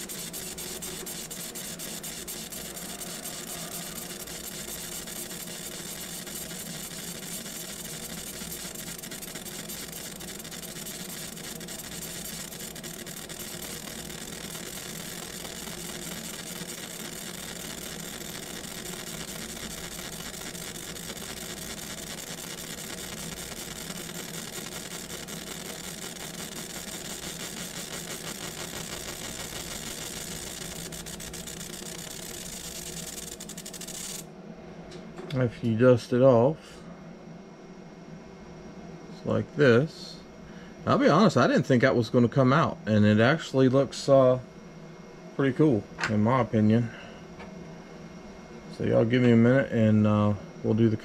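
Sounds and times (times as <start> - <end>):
laser engraver whirring: 0.0 - 34.3.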